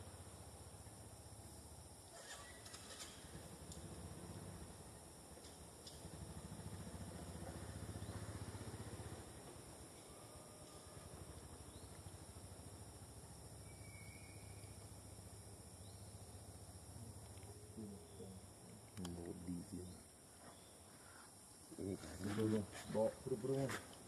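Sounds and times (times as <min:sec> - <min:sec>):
insect drone: 0:00.0 - 0:24.0
faint squeak: 0:02.1 - 0:03.3.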